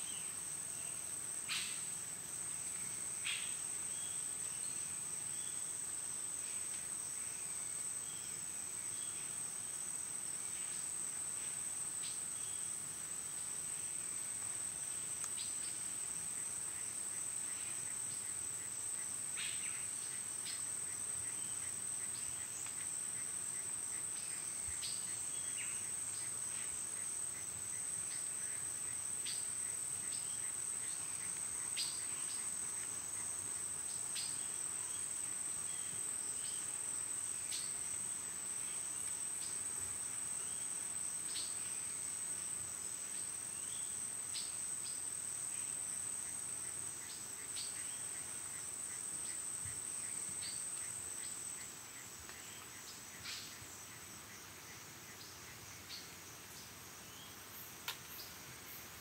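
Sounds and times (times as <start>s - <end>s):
high insect drone: 0.0s - 59.0s.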